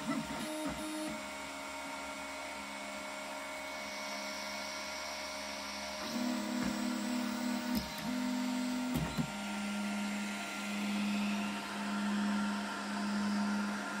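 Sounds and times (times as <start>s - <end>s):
stepper motors humming: 3.8s - 14.0s.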